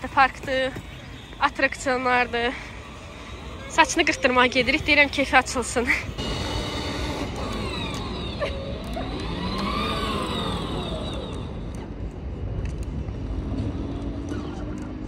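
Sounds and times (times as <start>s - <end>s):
outdoor background noise: 0.0s - 15.0s
toy truck motor whine: 0.8s - 11.9s.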